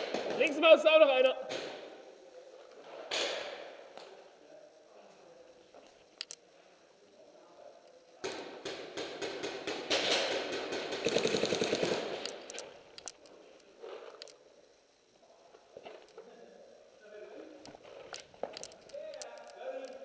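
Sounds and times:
paintball markers firing: 0.0 - 0.6, 8.2 - 13.2.

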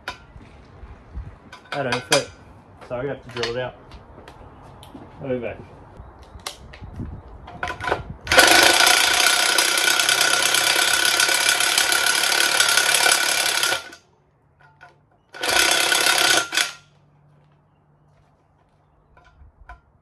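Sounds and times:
cordless drill drilling: 8.3 - 14.0, 15.4 - 16.7.

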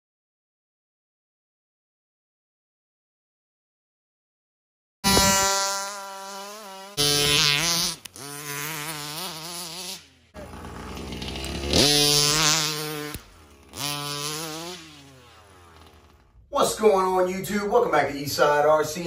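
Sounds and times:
rc truck engine revving: 5.0 - 17.0.

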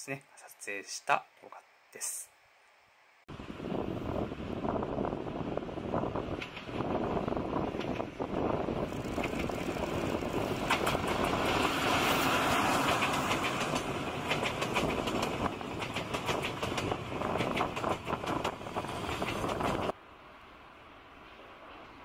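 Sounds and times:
train wheels rumbling: 4.2 - 20.0
wheels clacking over rail joints: 8.7 - 20.0.

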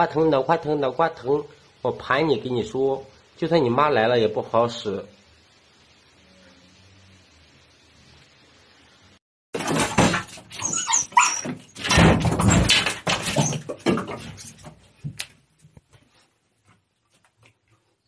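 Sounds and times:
dog crying loudly: 10.5 - 11.7.

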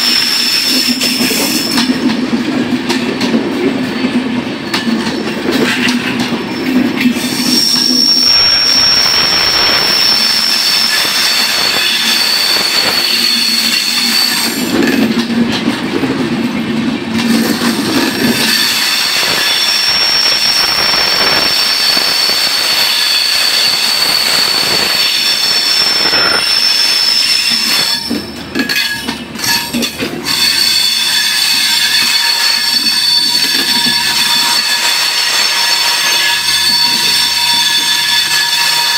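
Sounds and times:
train coaches rolling past: 0.0 - 38.9
high-pitched squeal: 7.1 - 15.0, 17.3 - 29.6, 30.3 - 38.9.

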